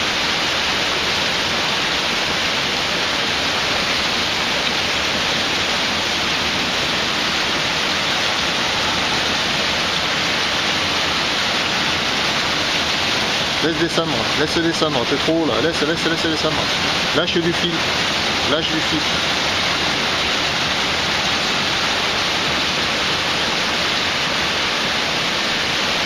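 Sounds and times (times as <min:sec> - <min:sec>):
stream rushing over rocks: 0:00.0 - 0:26.0.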